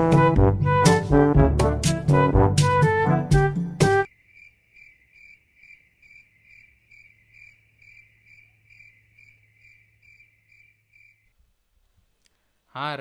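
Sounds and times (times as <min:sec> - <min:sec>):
cricket chirping: 0:04.1 - 0:11.3.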